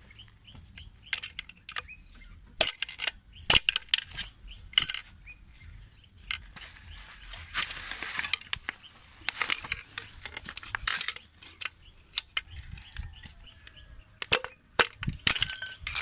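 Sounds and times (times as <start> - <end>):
socket wrench clicking on bolts: 1.0 - 1.9, 2.6 - 5.1, 10.2 - 12.6, 13.7 - 16.0.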